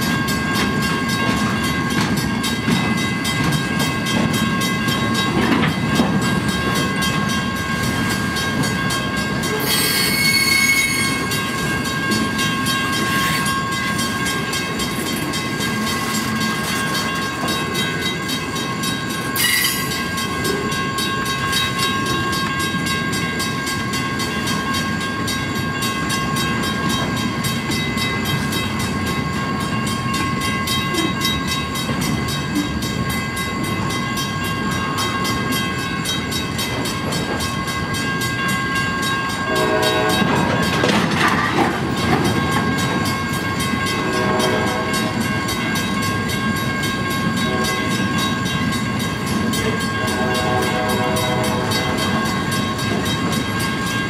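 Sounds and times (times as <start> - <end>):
train wheels rumbling on rail: 0.0 - 54.0
wheel squeal: 9.6 - 11.3.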